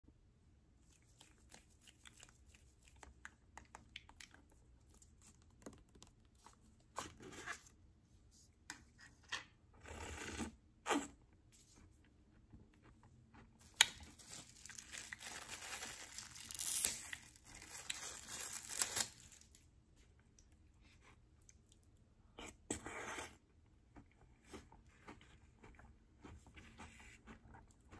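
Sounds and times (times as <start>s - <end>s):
wrapper tearing and crinkling: 13.6s - 19.6s.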